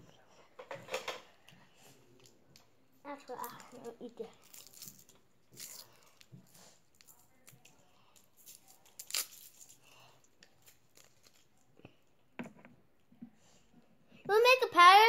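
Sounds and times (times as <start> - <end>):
candy wrappers crinkling: 2.0 - 11.9
sharp wrapper crackle: 3.3 - 6.3, 6.9 - 11.6.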